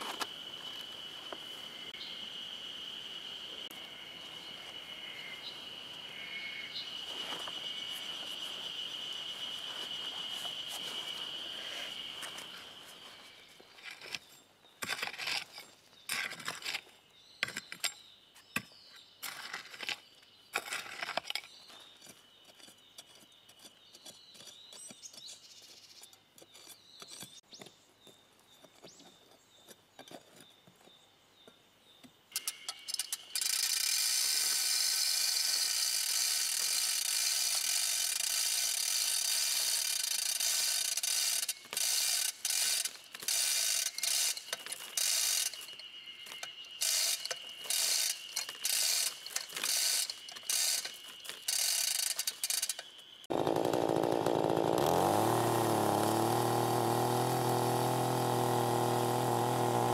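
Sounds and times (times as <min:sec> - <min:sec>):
high insect trill: 0:00.0 - 0:18.0, 0:32.3 - 0:59.9.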